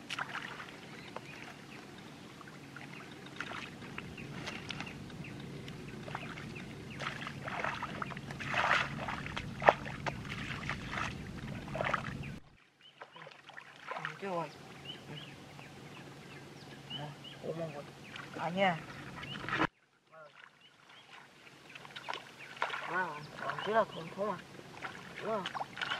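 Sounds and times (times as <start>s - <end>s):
low hum: 0.0s - 12.6s, 14.1s - 19.7s
splashing in muddy water: 0.0s - 15.3s, 17.7s - 25.9s.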